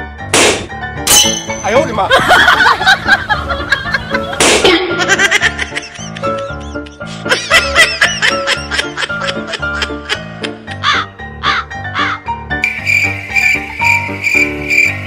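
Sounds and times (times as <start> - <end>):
background music: 0.0 - 15.0
balloon bursting: 0.4 - 0.7, 4.4 - 4.8
people laughing: 1.9 - 10.9.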